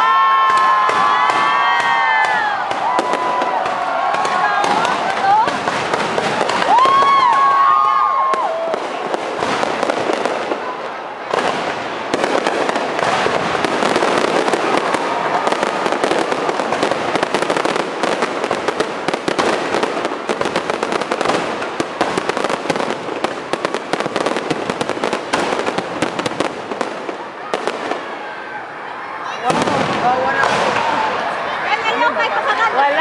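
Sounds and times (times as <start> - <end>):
fireworks crackling and popping: 0.0 - 28.8, 29.4 - 33.0.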